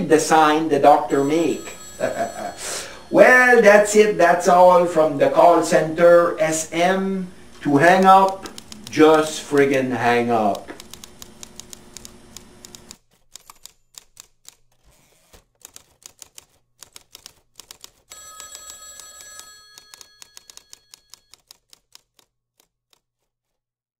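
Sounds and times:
telephone electronic trilling ring: 1.1s - 5.0s, 18.1s - 21.4s
typing on computer keyboard: 7.8s - 23.3s.

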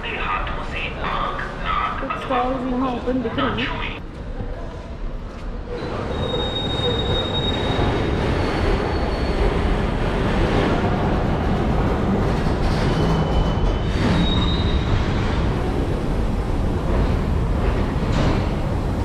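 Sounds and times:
train wheels rumbling on rail: 4.1s - 19.0s.

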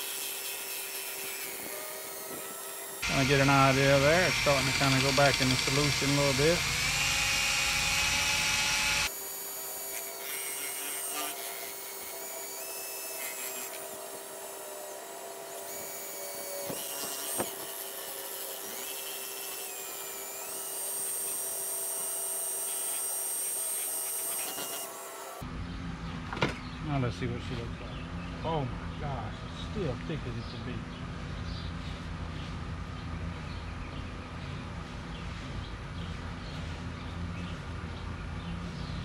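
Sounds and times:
drill motor whine: 0.0s - 25.4s.

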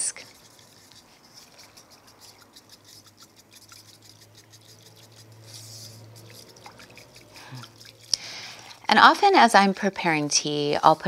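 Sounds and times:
whisk swishing in a bowl: 0.0s - 11.0s.

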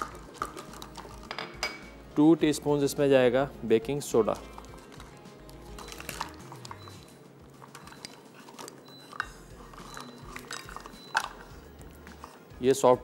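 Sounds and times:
soft background music: 0.0s - 13.0s
measuring spoon scraping a bowl: 7.7s - 12.4s.

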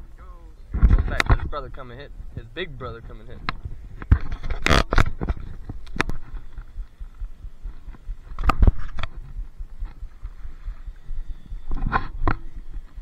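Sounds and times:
camera handling knocks and thumps: 0.8s - 1.6s, 3.4s - 10.3s.

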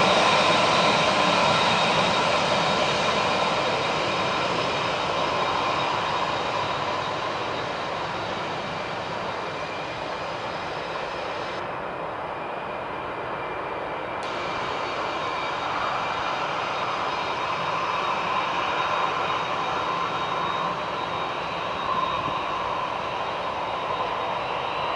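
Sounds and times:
jet engines roaring: 0.0s - 24.9s.

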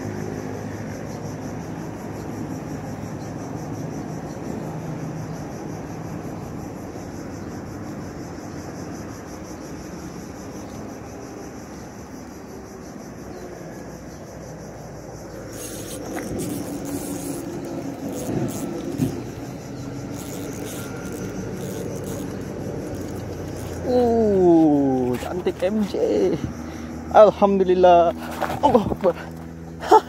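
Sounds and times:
insect-like buzz: 0.0s - 30.0s
fishing tackle clicks and rustles: 15.3s - 26.6s, 28.0s - 29.5s.

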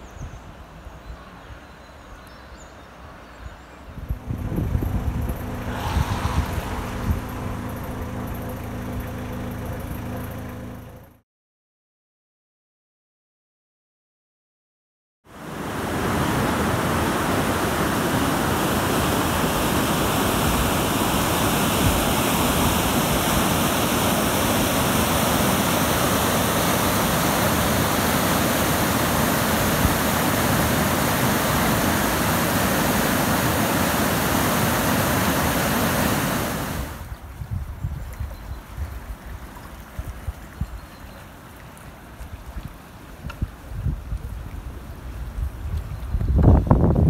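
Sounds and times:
water rushing over a weir: 4.1s - 8.5s, 15.3s - 37.2s.

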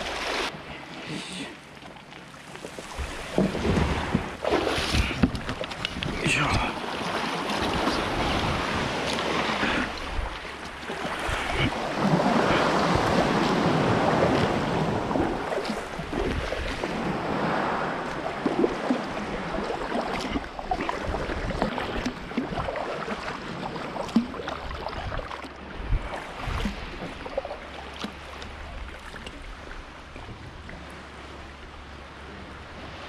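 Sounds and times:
sea water lapping: 0.0s - 33.0s
wind rumbling on microphone: 2.8s - 6.7s, 7.5s - 23.6s, 24.6s - 27.4s.

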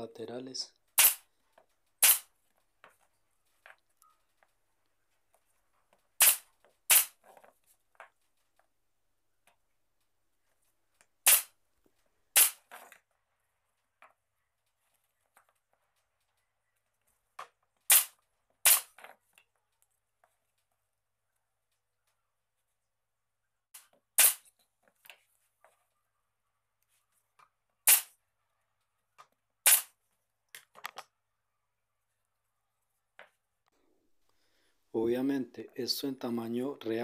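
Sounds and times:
sharp short snaps: 1.0s - 1.2s, 2.0s - 2.3s, 6.2s - 7.2s, 11.3s - 11.5s, 12.4s - 12.6s, 17.9s - 18.9s, 27.9s - 28.2s, 29.6s - 30.0s.

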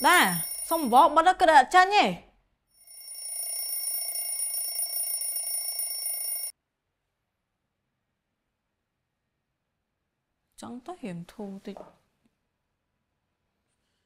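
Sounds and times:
alarm ringing: 0.0s - 1.1s, 2.8s - 6.5s.

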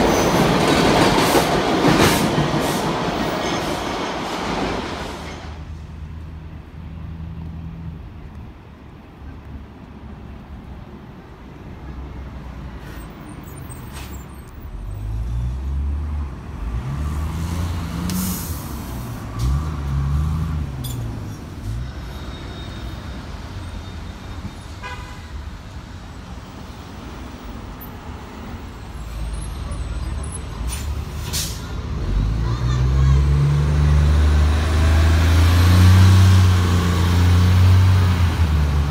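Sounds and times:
street traffic: 0.0s - 38.9s
bus diesel engine accelerating: 28.2s - 38.9s.

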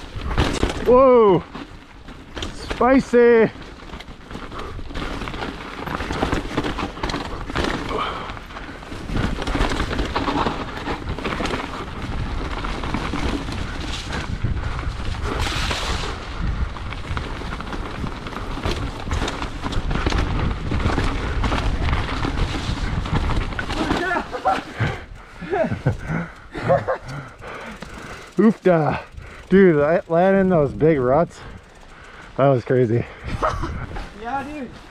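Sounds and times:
bike clattering over rough ground: 0.0s - 34.9s
bike tyres rumbling on trail: 0.0s - 34.9s
wind on microphone: 13.3s - 23.7s.

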